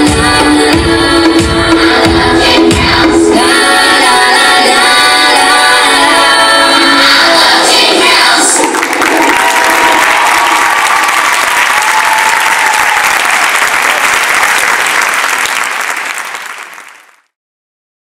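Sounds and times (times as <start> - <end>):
audience applauding: 8.6 - 17.3.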